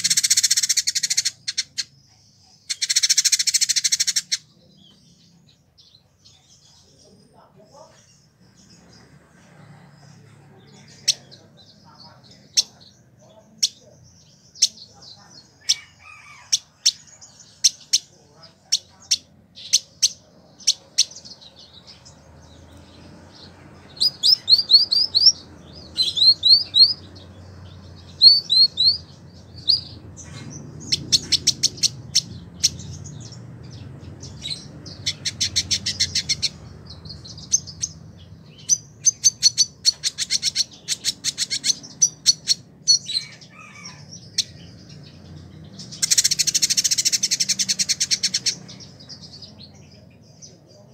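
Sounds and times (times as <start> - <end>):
bird singing chips and trills: 0.0 - 6.5, 18.7 - 50.9.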